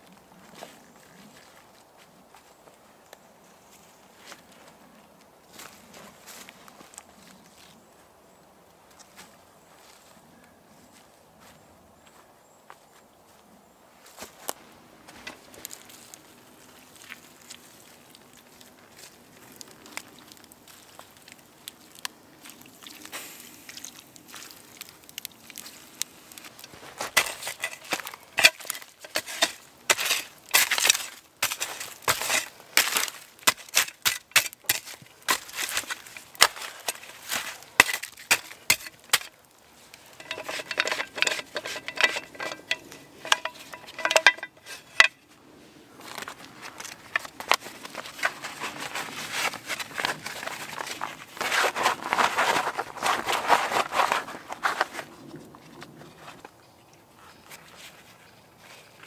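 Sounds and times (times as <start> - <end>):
shovel scraping through wet ash: 25.6 - 45.2, 46.2 - 54.9
shovel clinking against stones: 27.0 - 39.4, 40.1 - 45.2.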